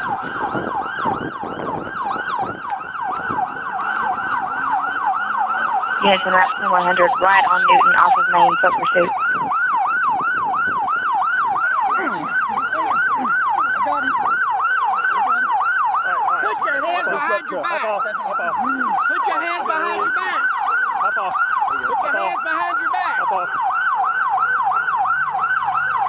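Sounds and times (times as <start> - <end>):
police siren yelping: 0.0 - 26.0
second siren: 0.0 - 26.0.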